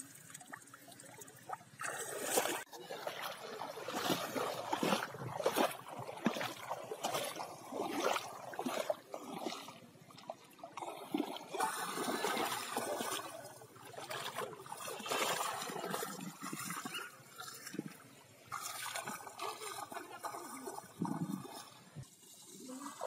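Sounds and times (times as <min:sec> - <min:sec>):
water splashing around wading legs: 0:00.0 - 0:21.8
rush of water: 0:01.8 - 0:09.8.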